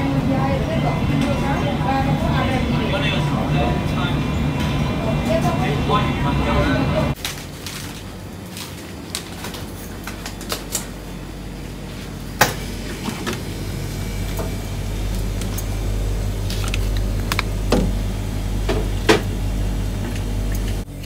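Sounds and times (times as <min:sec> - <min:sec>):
steady low hum: 0:00.0 - 0:21.0
plastic packets rustling: 0:07.2 - 0:10.9, 0:16.4 - 0:17.7.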